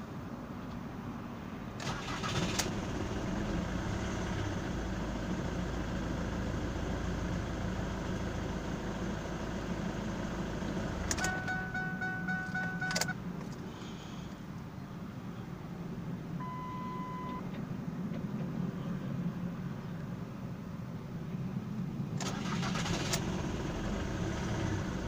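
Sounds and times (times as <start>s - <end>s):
diesel engine cranking and idling: 1.7s - 14.5s, 22.1s - 25.0s
dashboard warning chime beeping: 11.1s - 13.2s, 16.4s - 17.5s.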